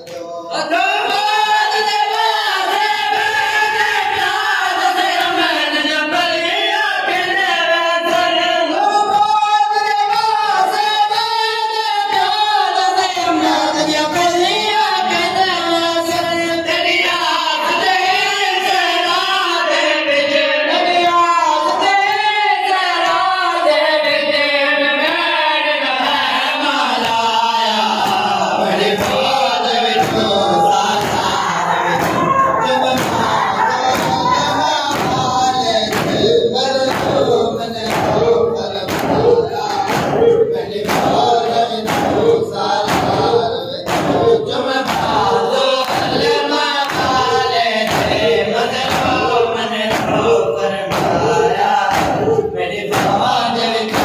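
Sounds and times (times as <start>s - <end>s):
men chanting in unison: 0.0s - 54.0s
chest-beating thuds: 29.0s - 54.0s.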